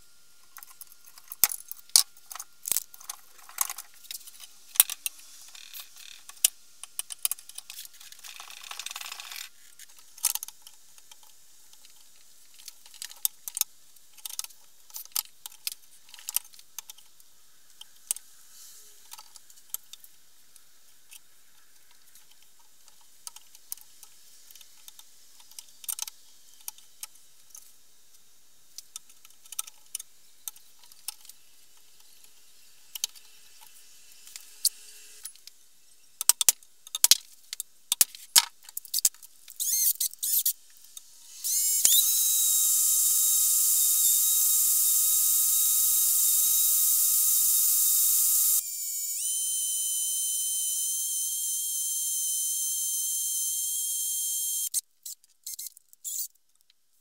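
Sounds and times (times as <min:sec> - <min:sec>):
electric drill whining: 0:39.6 - 0:40.5, 0:41.3 - 0:54.8.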